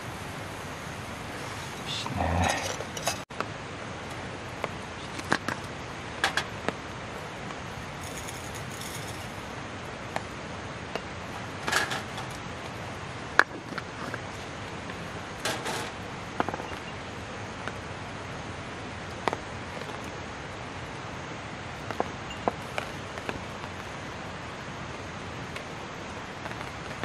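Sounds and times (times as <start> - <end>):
background hiss: 0.0 - 27.0
tableware clinking on metal table: 2.4 - 3.2, 15.4 - 15.9.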